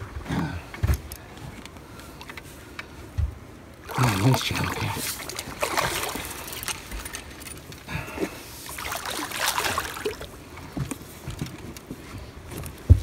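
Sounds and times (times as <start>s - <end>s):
fish thrashing and splashing: 3.8s - 10.6s.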